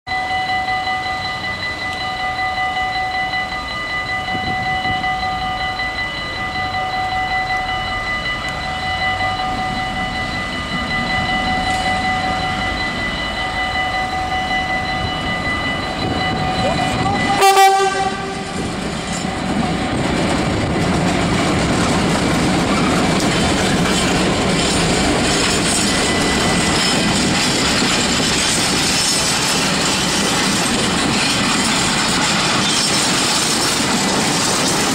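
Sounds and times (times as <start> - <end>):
diesel locomotive engine: 0.1 - 34.9
level crossing bells ringing: 0.1 - 34.9
freight wagons rolling on rails: 3.6 - 34.9
locomotive horn blast: 17.0 - 18.7.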